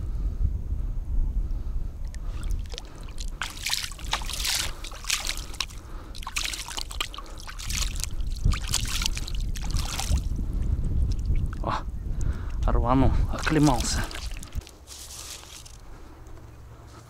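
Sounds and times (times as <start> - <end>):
wind rumble on microphone: 0.0 - 16.8
hand splashing in water: 2.1 - 10.3, 13.3 - 15.6.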